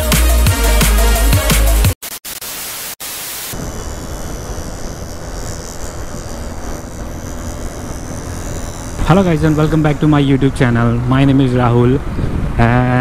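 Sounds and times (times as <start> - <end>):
music: 0.0 - 2.0
wind rush: 3.5 - 13.0
motorcycle road noise: 3.6 - 13.0.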